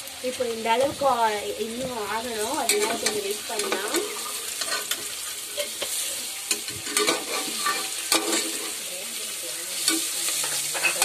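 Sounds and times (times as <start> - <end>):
onions sizzling in oil: 0.0 - 11.0
spoon scraping pan: 2.4 - 11.0.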